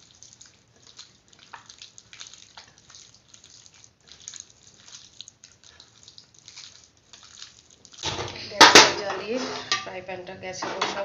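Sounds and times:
soft squishing and patting of chicken: 0.0 - 8.6.

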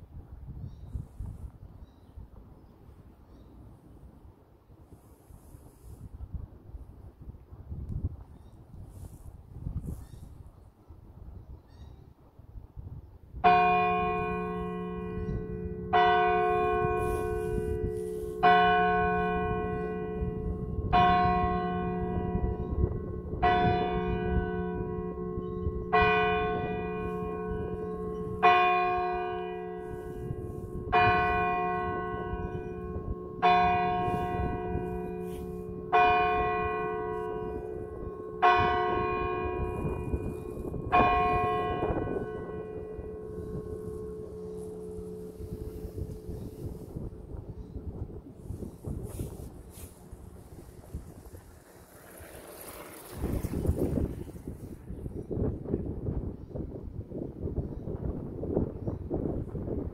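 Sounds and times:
large church bell striking: 13.4 - 48.0.

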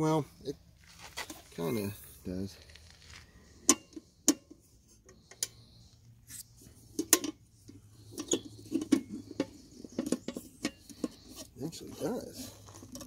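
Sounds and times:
metal cover clacking and rattling: 6.9 - 12.1, 12.7 - 13.0.

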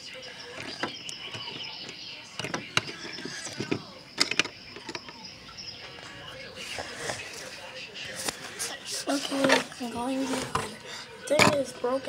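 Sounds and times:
plastic toys clicking and tapping: 0.5 - 5.2, 10.3 - 11.8.

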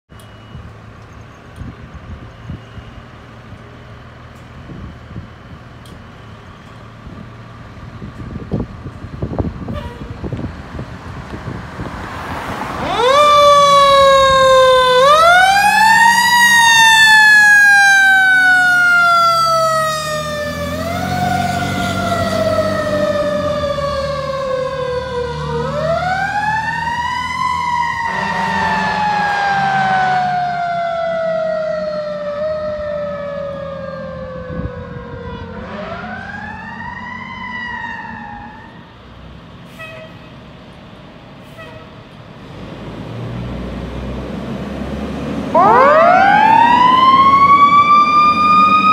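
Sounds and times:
diesel engines rumbling: 0.1 - 48.9
horn blast: 28.0 - 30.2.

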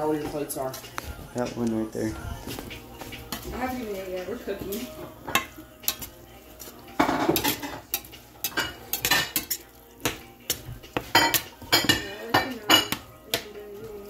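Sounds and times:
utensils clinking against pans: 2.5 - 14.0.

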